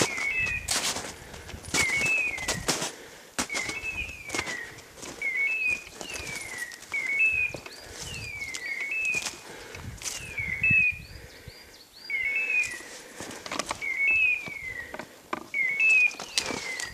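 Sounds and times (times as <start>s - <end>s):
footsteps on rock and brush: 0.0s - 10.4s, 12.6s - 16.9s.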